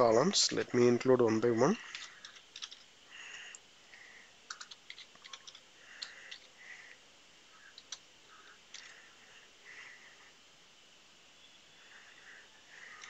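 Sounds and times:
typing on computer keyboard: 0:01.8 - 0:02.9, 0:04.5 - 0:06.5.

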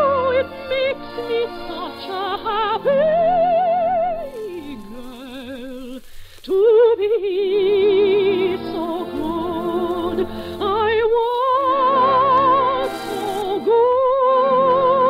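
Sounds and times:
orchestra playing: 0:00.0 - 0:05.1
operatic soprano singing: 0:00.0 - 0:15.0.

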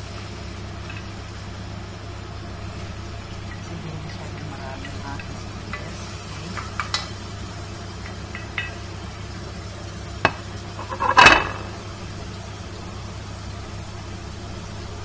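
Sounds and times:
onions sizzling in hot oil: 0:00.0 - 0:15.0
spoon clattering against pot: 0:04.1 - 0:07.2, 0:08.0 - 0:08.9
metal spoon scraping on plate: 0:10.8 - 0:11.6.

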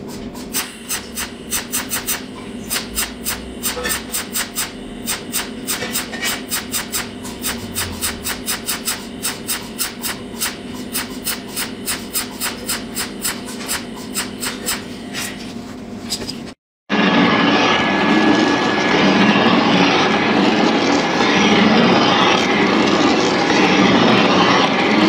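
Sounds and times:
steady low hum: 0:00.0 - 0:16.5
rapid mechanical ticking: 0:00.6 - 0:14.9.

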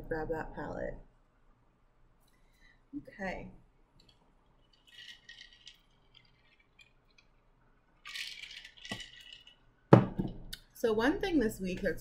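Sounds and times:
ice clinking in a glass: 0:04.8 - 0:07.1, 0:08.0 - 0:09.6.

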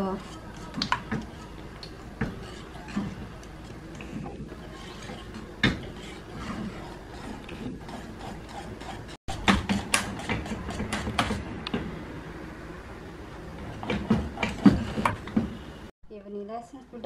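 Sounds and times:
whisk scraping metal pot: 0:00.0 - 0:11.4.

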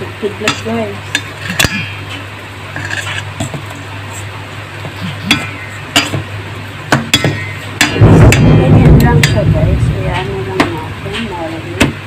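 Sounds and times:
steady low hum: 0:00.0 - 0:12.0
tongs scraping in a glass bowl: 0:02.7 - 0:03.3.

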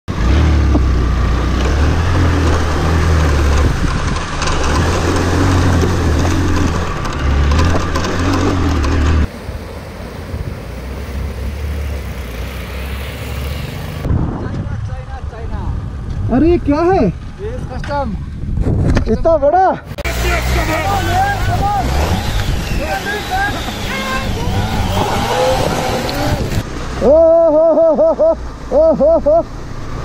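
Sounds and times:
motorcycle engine running: 0:00.5 - 0:09.3, 0:20.0 - 0:26.7
knocks and clatter: 0:00.7 - 0:09.3
wind noise: 0:02.3 - 0:09.6, 0:14.0 - 0:19.6, 0:21.2 - 0:26.7.

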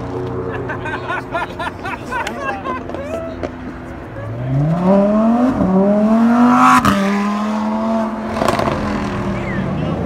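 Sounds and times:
car engine accelerating: 0:02.9 - 0:10.0.

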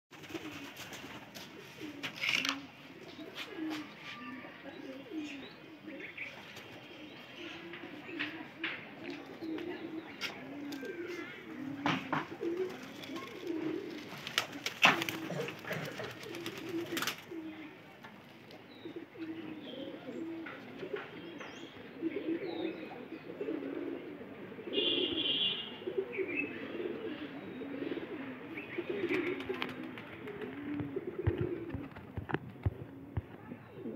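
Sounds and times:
pigeons cooing: 0:00.2 - 0:17.9, 0:18.5 - 0:33.9.

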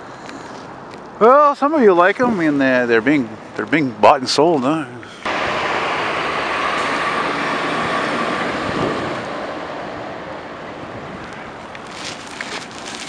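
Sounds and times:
heavy truck passing: 0:05.2 - 0:13.0.

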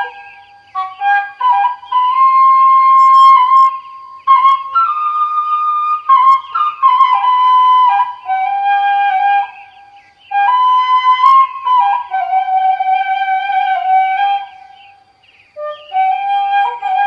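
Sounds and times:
flute playing slow melody: 0:00.0 - 0:15.0, 0:15.6 - 0:17.0.

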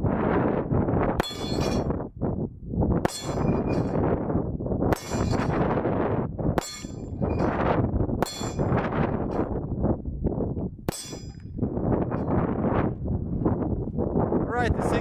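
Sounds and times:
wind noise on microphone: 0:00.0 - 0:15.0
steel target ringing: 0:01.2 - 0:02.0, 0:03.0 - 0:04.1, 0:04.9 - 0:05.7, 0:06.6 - 0:07.6, 0:08.2 - 0:09.5, 0:10.9 - 0:11.4.

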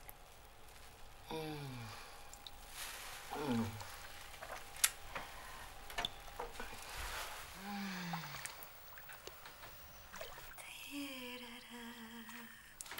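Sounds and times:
bath foam crackling and fizzing: 0:00.0 - 0:10.7
woman sighing: 0:01.3 - 0:02.2, 0:03.3 - 0:03.9, 0:07.6 - 0:08.5.

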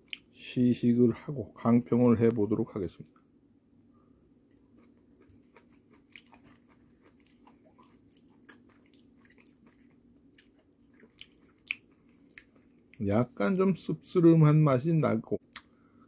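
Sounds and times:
steady low hum: 0:00.0 - 0:16.0
faint chewing crunches: 0:03.8 - 0:13.3.

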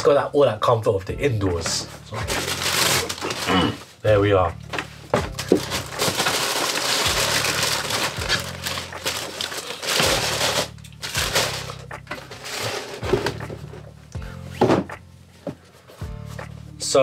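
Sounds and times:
tissue paper rustling: 0:01.9 - 0:04.0, 0:04.8 - 0:13.4.

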